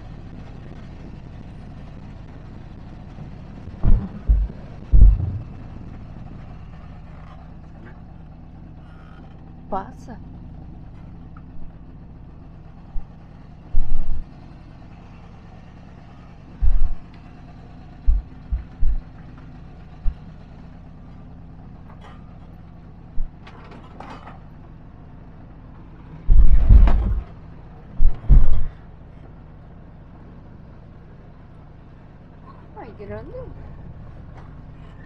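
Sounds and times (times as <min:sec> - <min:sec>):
van engine hum: 0:00.0 - 0:35.0
van thumping over bumps: 0:03.8 - 0:06.0, 0:12.9 - 0:14.4, 0:16.6 - 0:17.1, 0:18.0 - 0:20.4, 0:23.1 - 0:24.5, 0:26.2 - 0:28.8.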